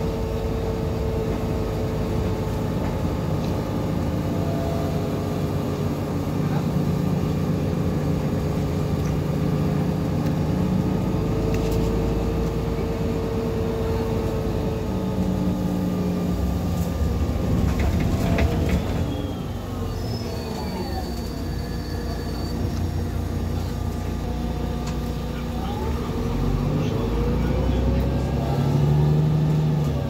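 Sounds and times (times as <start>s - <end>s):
bus diesel engine rumble: 0.0s - 30.0s
gearbox whining tones: 16.9s - 23.0s.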